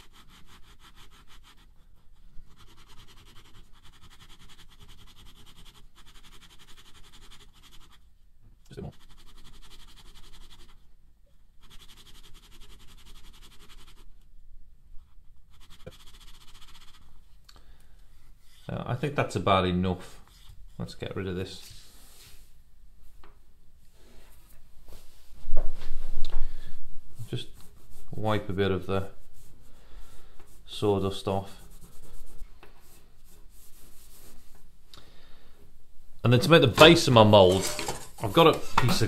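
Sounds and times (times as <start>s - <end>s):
sandpaper rasping scrape: 0.0s - 1.7s, 2.4s - 8.0s, 8.8s - 10.8s, 11.6s - 14.0s, 15.5s - 17.1s, 30.5s - 34.4s.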